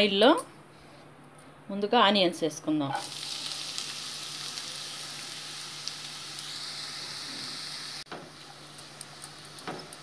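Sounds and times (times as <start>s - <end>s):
onions sizzling in hot oil: 3.0s - 10.0s.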